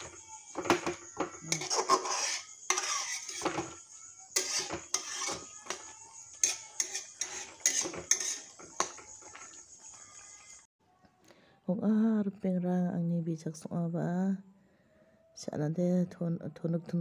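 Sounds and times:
metal spatula scraping a wok: 1.4s - 9.5s.

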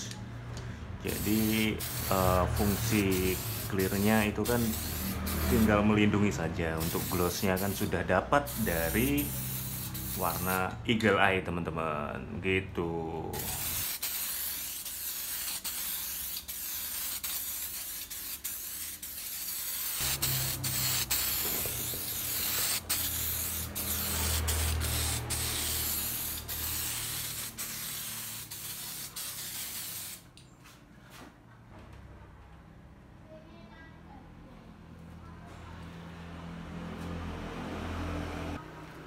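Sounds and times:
spray paint can hissing: 1.1s - 5.9s, 6.8s - 10.7s, 13.4s - 30.3s.

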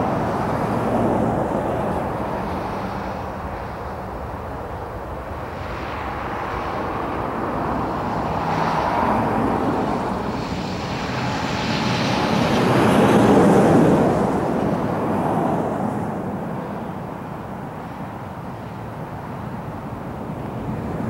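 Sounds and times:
jet engines roaring: 0.0s - 21.0s.

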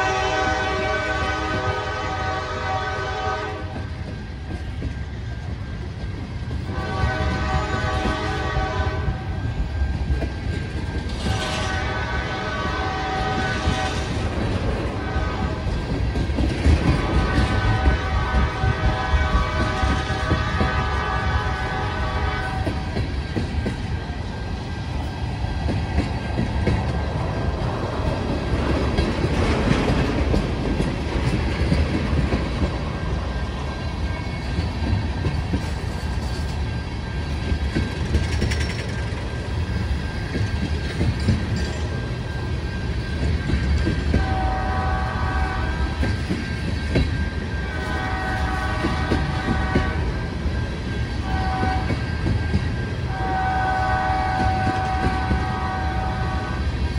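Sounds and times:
freight train rumbling past: 0.0s - 56.9s
wheels clattering over rail joints: 33.8s - 42.2s.

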